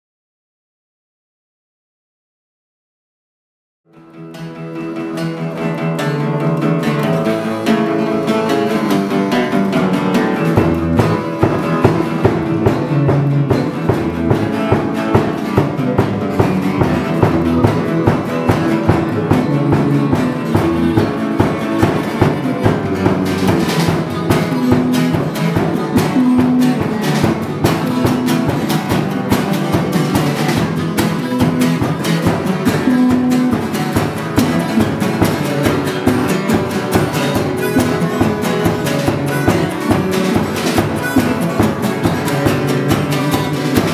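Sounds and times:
acoustic guitar: 0:03.9 - 0:43.9
steady beat: 0:05.6 - 0:43.9
bass line: 0:06.9 - 0:43.9
harmonica: 0:37.1 - 0:43.9.

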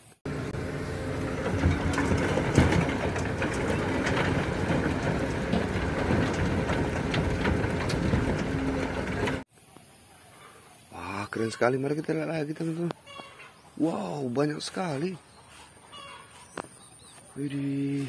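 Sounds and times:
excavator diesel engine running: 0:00.2 - 0:09.5
soil and stones falling into truck: 0:01.2 - 0:09.4.

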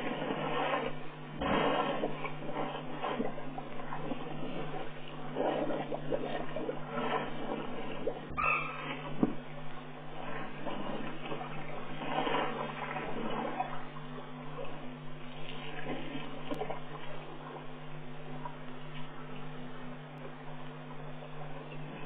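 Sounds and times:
steady low hum: 0:00.0 - 0:22.0
water splashing and sloshing: 0:00.0 - 0:22.0.

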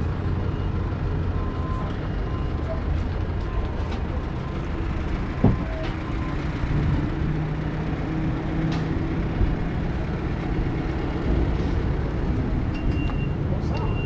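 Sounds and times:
heavy engine rumbling: 0:00.0 - 0:14.0.

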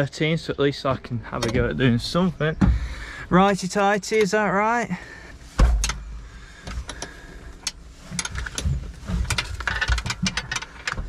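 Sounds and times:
spanner metal clicks and scrapes: 0:06.6 - 0:11.0.

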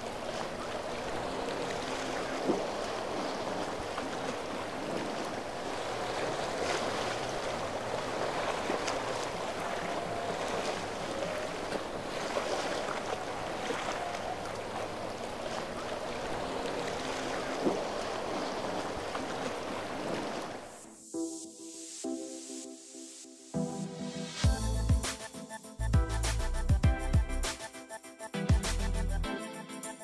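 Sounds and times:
boat wake water rushing: 0:00.0 - 0:20.9
wind: 0:00.0 - 0:21.2.

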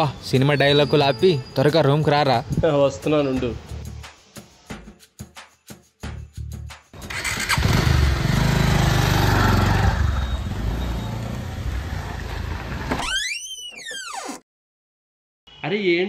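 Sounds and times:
motorbike engine: 0:07.0 - 0:12.9
rising and falling squeak: 0:12.2 - 0:14.5.

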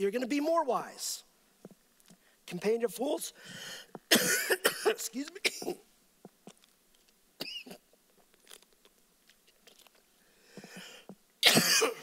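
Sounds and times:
man coughing: 0:04.1 - 0:05.8, 0:11.4 - 0:12.0
plastic water bottle crackling: 0:08.2 - 0:10.1.

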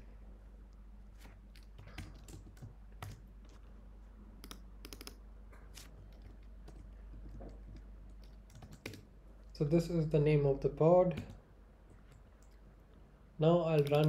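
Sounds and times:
keyboard keystrokes: 0:04.4 - 0:05.2, 0:13.7 - 0:14.0.

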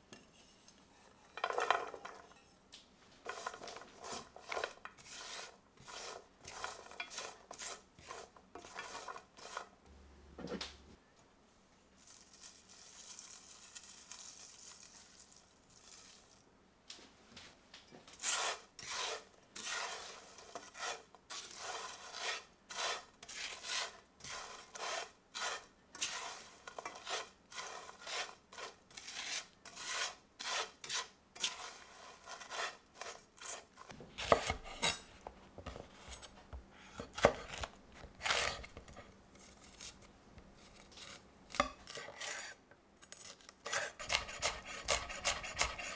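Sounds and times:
utensil scraping a pan: 0:00.0 - 0:02.6, 0:03.2 - 0:09.8, 0:18.0 - 0:45.9
breadcrumbs pouring into a pan: 0:12.0 - 0:16.4.

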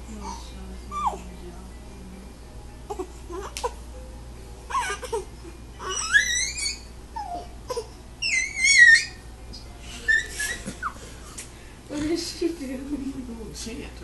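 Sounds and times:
infant babbling and whimpering: 0:02.9 - 0:03.8, 0:04.7 - 0:09.1
infant high-pitched squeal: 0:05.8 - 0:09.3, 0:10.0 - 0:10.8.

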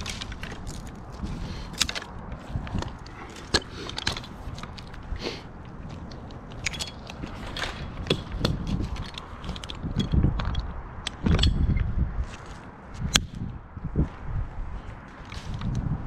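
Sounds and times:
climbing hardware clicks and clanks: 0:00.0 - 0:11.9.

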